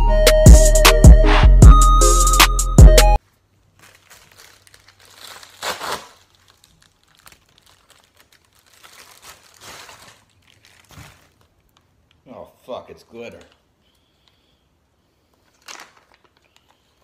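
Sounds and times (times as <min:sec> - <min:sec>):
envelope crinkling and rustling: 0:03.2 - 0:12.2, 0:15.2 - 0:17.0.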